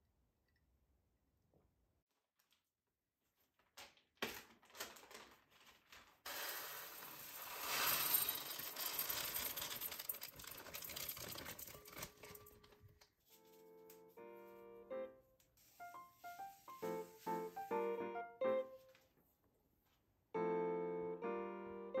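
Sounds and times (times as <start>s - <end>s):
plastic bag crinkling: 3.6s - 12.8s
dry rice pouring into pot: 6.2s - 12.0s.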